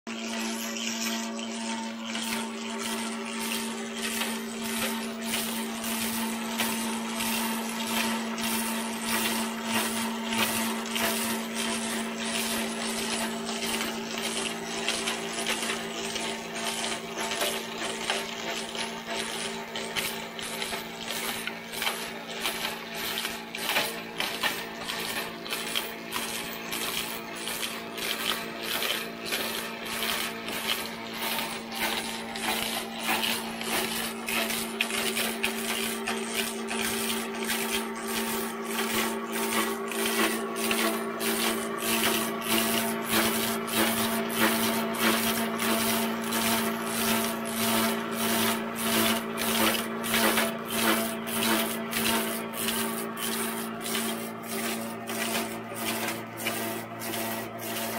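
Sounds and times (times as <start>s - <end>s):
log lathe motor hum: 0.1s - 57.9s
cutter head shaving log: 29.7s - 57.9s.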